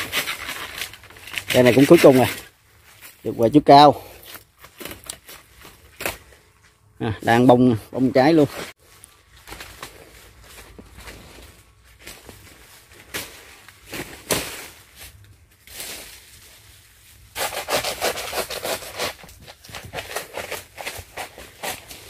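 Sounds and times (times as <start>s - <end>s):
rubbing and scraping: 0.0s - 3.4s, 8.2s - 22.0s.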